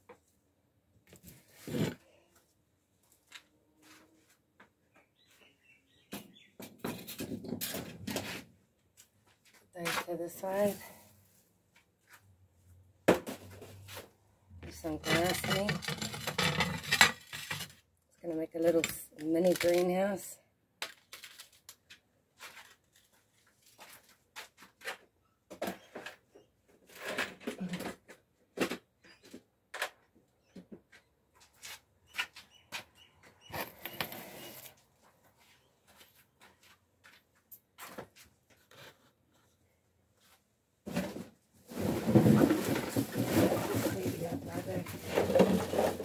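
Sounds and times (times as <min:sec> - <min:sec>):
objects knocking and clattering: 0:14.6 - 0:17.8, 0:40.9 - 0:46.0
rustle and bump on microphone: 0:40.2 - 0:46.0
rustling: 0:40.2 - 0:46.0.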